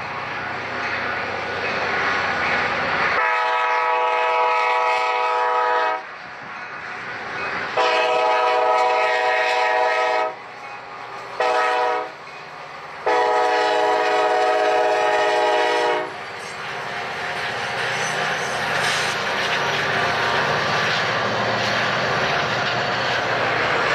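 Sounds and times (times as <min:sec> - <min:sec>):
train rumbling: 0:00.0 - 0:23.9
locomotive air horn blasts: 0:03.2 - 0:06.1, 0:07.8 - 0:10.4, 0:11.4 - 0:12.2, 0:13.0 - 0:16.2.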